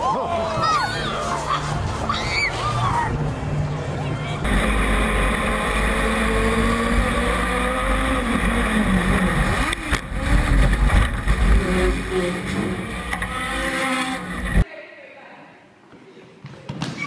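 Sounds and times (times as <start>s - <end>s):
race car engine running hard: 3.3s - 14.6s.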